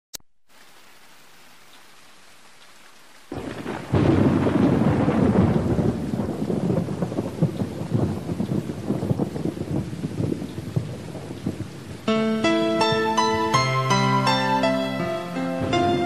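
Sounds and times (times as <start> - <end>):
faint hiss: 0.4 - 3.8, 10.4 - 16.0
heavy rain: 0.5 - 16.0
thunder rumble: 3.3 - 14.1, 15.5 - 16.0.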